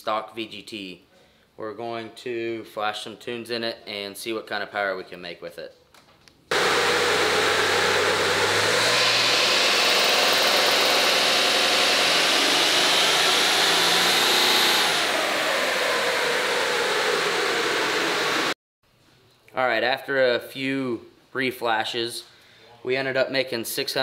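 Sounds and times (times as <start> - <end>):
diesel engine under full load: 6.5 - 18.6
turbos whistling: 6.5 - 18.6.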